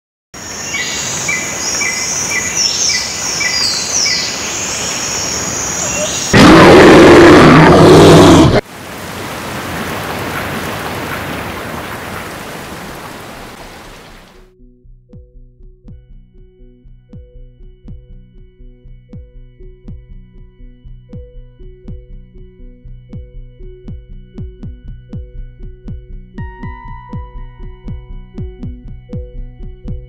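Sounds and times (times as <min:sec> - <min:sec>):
high chirping calls: 0:00.5 - 0:06.4
rain hissing: 0:03.8 - 0:14.4.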